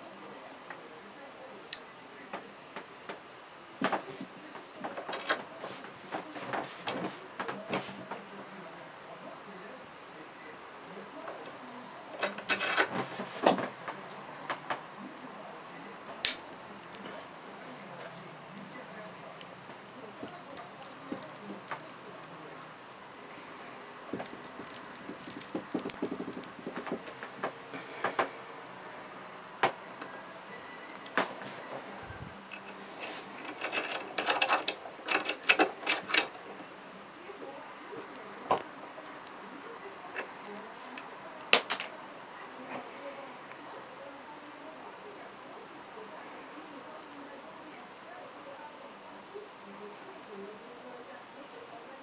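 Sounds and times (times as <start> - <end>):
glass crackling in a vise: 11.4 - 13.8, 16.2 - 23.2, 24.0 - 27.5, 32.5 - 36.7.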